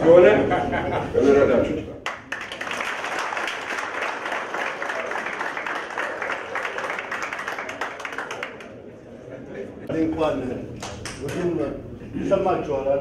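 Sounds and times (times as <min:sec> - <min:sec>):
audience applauding: 0:02.0 - 0:08.8.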